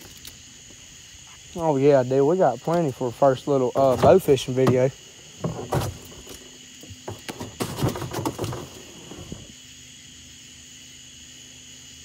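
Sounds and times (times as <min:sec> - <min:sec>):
crickets chirping: 0:00.0 - 0:12.0
knocks and rustles: 0:03.8 - 0:09.5.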